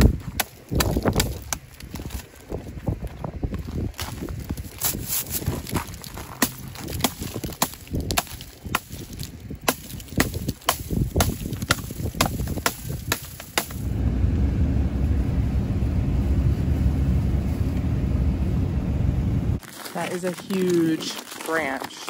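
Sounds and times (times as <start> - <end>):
truck engine rumble from inside cab: 13.6 - 19.6.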